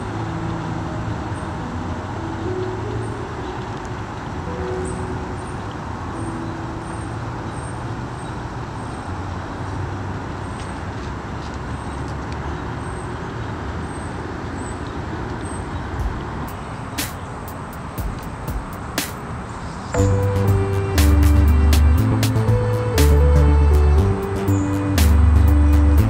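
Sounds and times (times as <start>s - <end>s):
distant road traffic rumble: 0.0s - 26.0s
sharp click: 17.0s - 19.3s.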